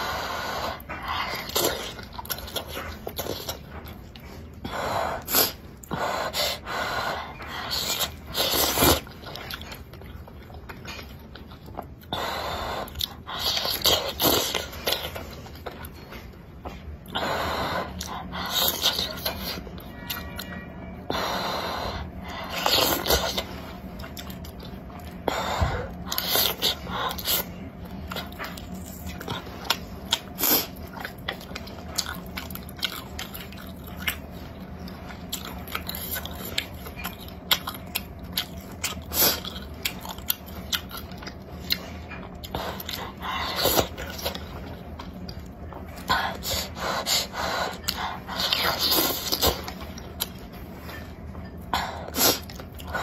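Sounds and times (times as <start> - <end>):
wet chewing and lip-smacking: 22.2 - 53.0.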